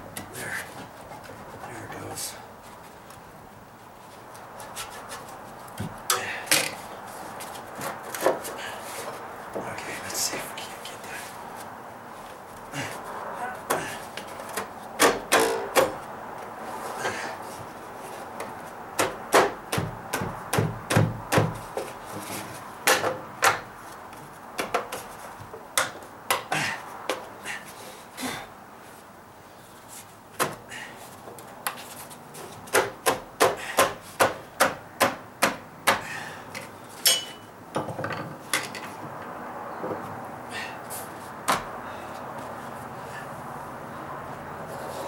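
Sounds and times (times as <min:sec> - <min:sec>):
rubbing and scraping: 0:03.8 - 0:05.8.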